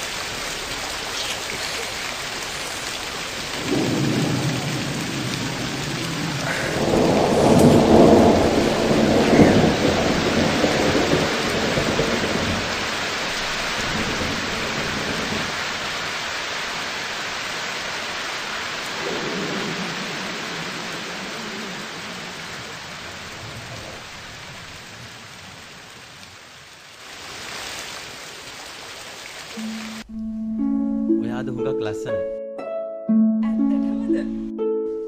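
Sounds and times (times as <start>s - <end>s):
steady rain: 0.0s - 30.2s
rolling thunder: 3.3s - 16.0s, 18.9s - 25.2s.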